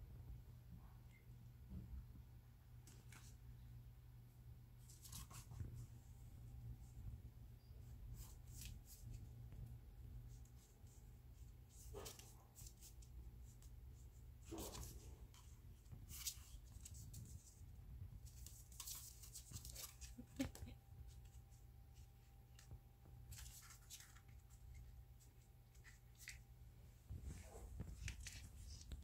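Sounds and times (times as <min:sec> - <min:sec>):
puppy scratching and rustling: 0:10.2 - 0:26.5.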